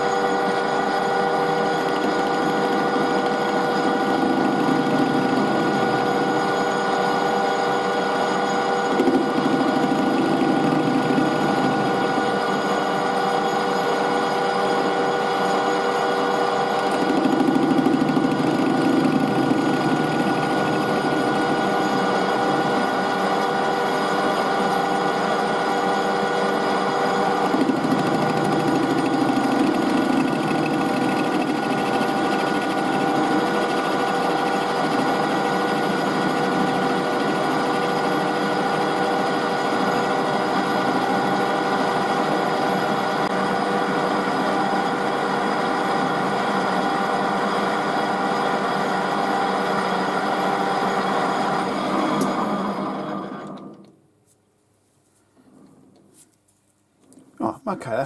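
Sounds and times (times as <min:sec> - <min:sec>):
metal lathe cutting: 0:00.0 - 0:53.7.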